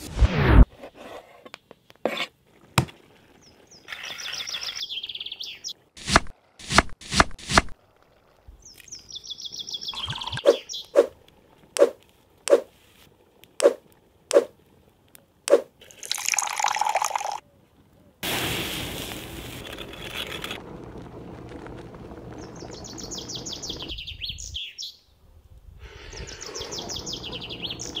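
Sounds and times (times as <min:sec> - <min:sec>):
songbirds chirping: 0:03.4 - 0:05.9, 0:08.6 - 0:11.1, 0:22.3 - 0:25.2, 0:25.9 - 0:28.0
stew simmering in a cauldron: 0:18.2 - 0:24.0
wood fire hissing: 0:18.2 - 0:24.0, 0:25.6 - 0:28.0.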